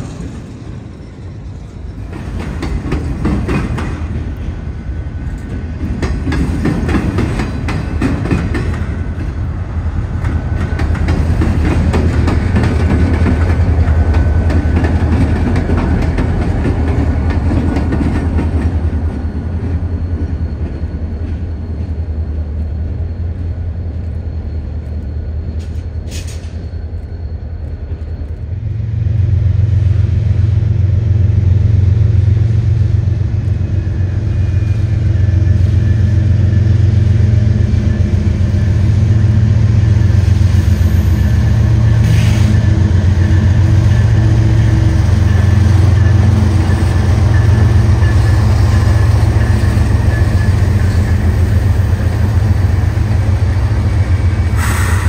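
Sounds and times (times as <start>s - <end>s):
diesel locomotive hum: 0.0s - 55.0s
freight train rumble: 0.0s - 55.0s
wheels clacking over rail joints: 1.7s - 4.6s, 5.3s - 9.5s, 10.2s - 22.0s.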